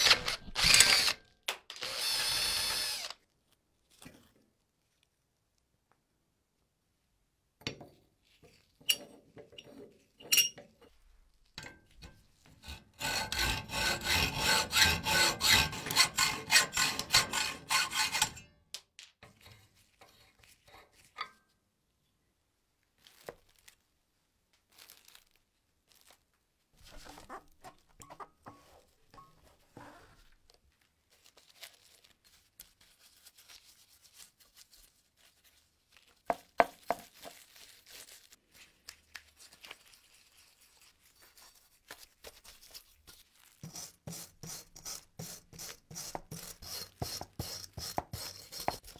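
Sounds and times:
hand abrading metal strokes: 11.6s - 18.5s.

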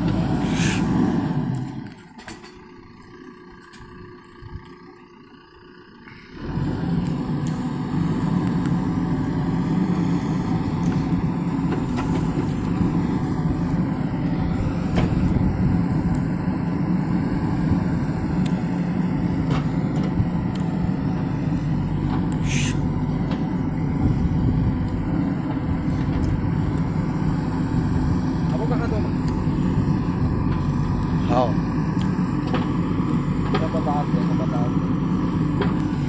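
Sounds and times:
backhoe arm digging earth: 0.0s - 4.8s, 6.1s - 36.0s
diesel engine running: 0.0s - 36.0s
short hiss: 0.4s - 0.9s, 22.4s - 22.8s.

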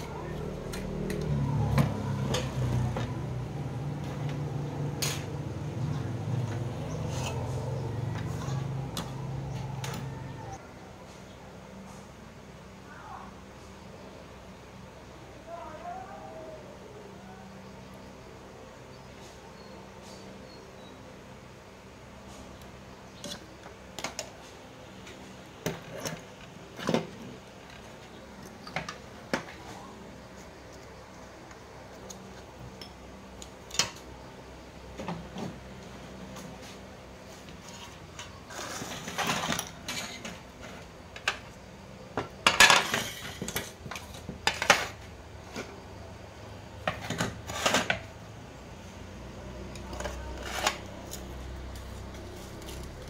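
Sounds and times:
parts clattering on a workbench: 37.5s - 45.8s, 46.8s - 48.1s.

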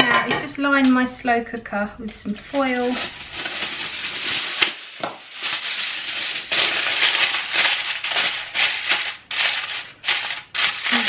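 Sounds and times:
aluminium foil crinkling: 2.2s - 11.0s.

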